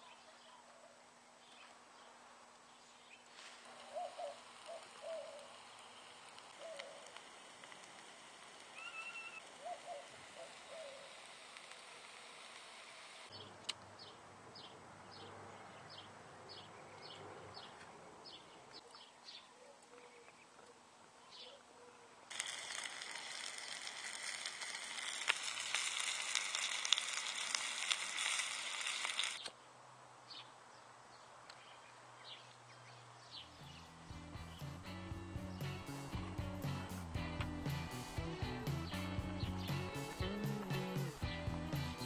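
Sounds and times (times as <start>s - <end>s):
wood fire hissing and crackling: 3.2s - 13.3s, 22.3s - 29.5s, 33.7s - 42.0s
faint high chirps: 8.7s - 11.1s.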